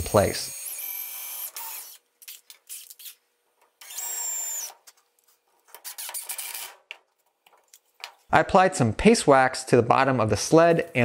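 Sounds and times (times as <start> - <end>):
cordless driver whining: 3.8 - 4.8
screw rasping into wood: 5.7 - 6.8.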